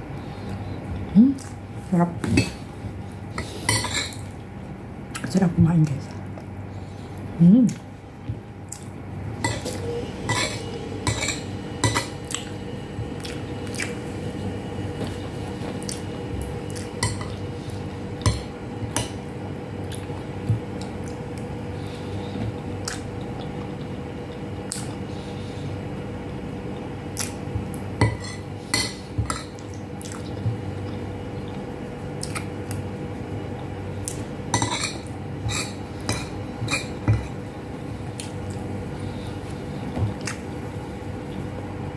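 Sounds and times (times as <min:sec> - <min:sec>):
faint steady hum: 0:00.0 - 0:41.9.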